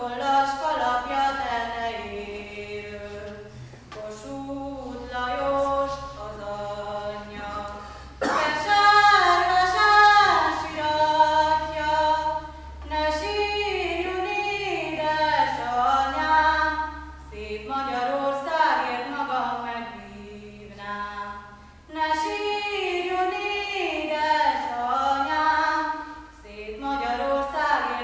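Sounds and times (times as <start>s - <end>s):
voices singing folk song: 0.0s - 19.8s.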